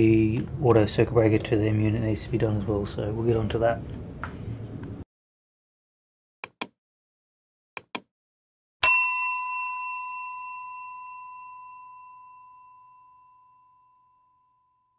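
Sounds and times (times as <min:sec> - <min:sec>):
bell ding: 0:08.8 - 0:14.9.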